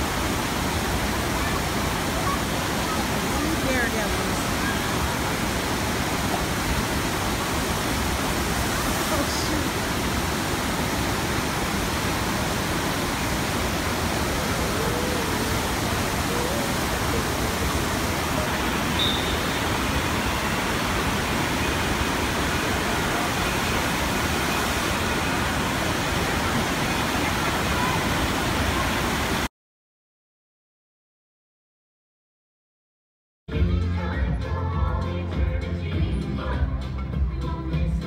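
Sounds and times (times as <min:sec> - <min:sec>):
water rushing: 0:00.0 - 0:29.5
faint voices: 0:14.0 - 0:29.4.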